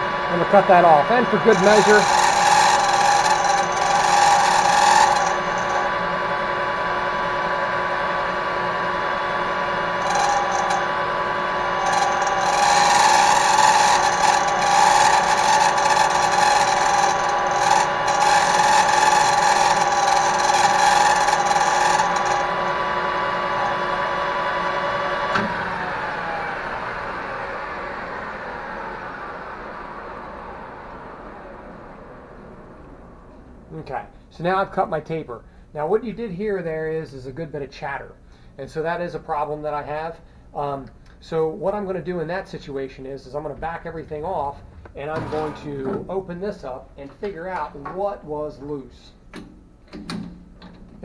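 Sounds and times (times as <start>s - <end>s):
metal lathe running: 0.0s - 32.0s
ringing tool chatter: 0.5s - 5.9s, 10.0s - 10.9s, 11.8s - 22.5s.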